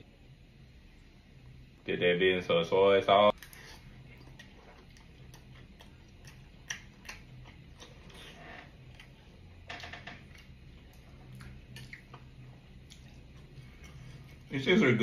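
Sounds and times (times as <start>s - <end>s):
chewing and mouth clicks: 3.3s - 9.4s, 10.2s - 14.5s.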